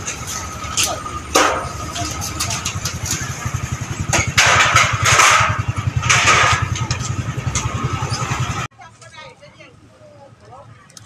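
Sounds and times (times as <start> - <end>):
motorcycle engine revving: 0.0 - 8.7.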